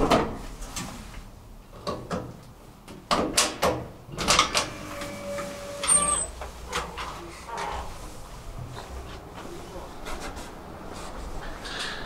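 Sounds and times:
elevator door mechanism clunks: 3.2s - 6.2s
sliding doors squealing: 4.1s - 8.0s.

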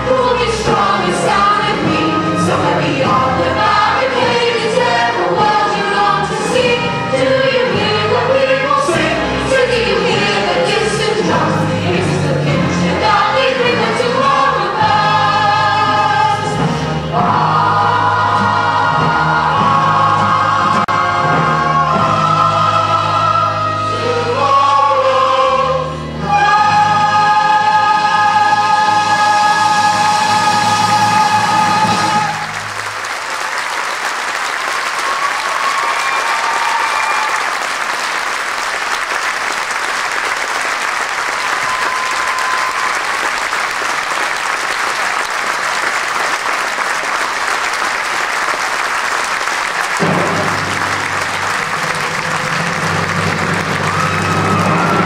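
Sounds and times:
audience applauding: 31.6s - 55.0s.

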